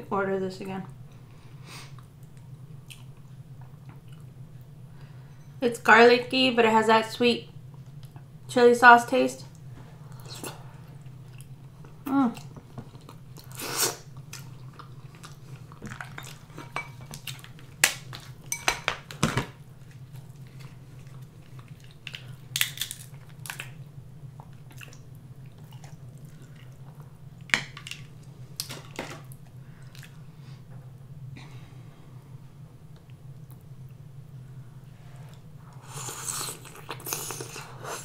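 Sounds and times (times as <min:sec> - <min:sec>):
steady low hum: 0:00.0 - 0:38.0
wet chewing sounds: 0:19.8 - 0:27.2
crab shell cracking: 0:22.0 - 0:23.8.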